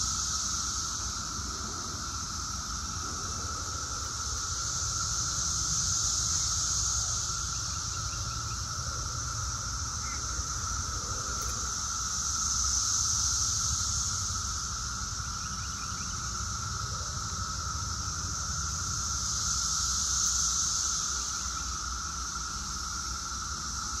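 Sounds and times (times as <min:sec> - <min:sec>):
cicadas droning: 0:00.0 - 0:24.0.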